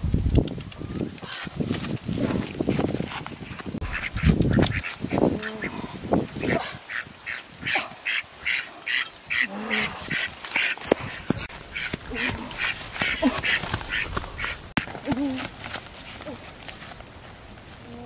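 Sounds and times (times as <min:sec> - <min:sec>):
duck quacking: 0:03.8 - 0:04.9, 0:06.4 - 0:14.6.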